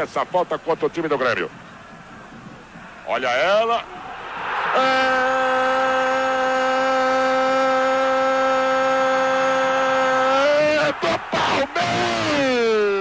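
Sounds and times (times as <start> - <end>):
man shouting long note: 4.8 - 13.0.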